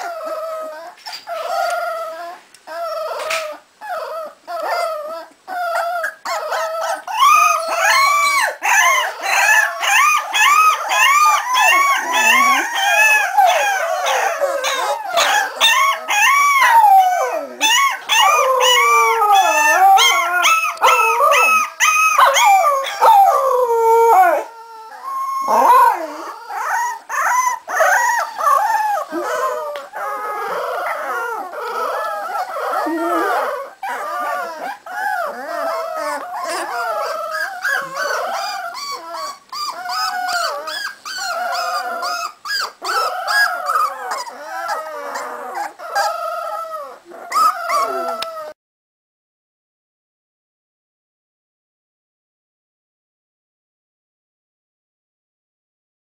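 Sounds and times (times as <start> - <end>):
puppies howling: 0.0 - 48.6.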